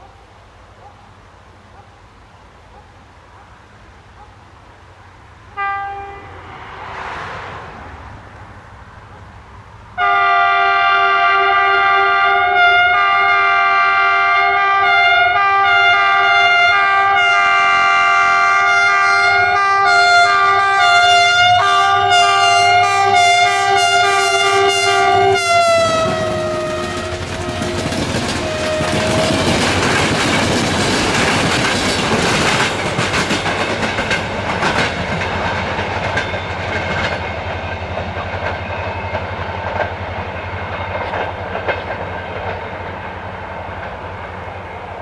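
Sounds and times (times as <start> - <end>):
passing train clatter: 0.0 - 45.0
locomotive horn: 5.5 - 6.8, 10.0 - 29.9.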